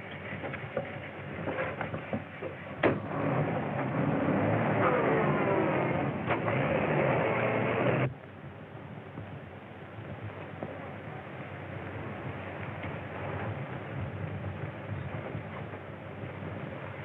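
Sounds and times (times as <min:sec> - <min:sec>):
film soundtrack hiss: 0:00.0 - 0:17.0
car engine pulling away: 0:02.8 - 0:08.1.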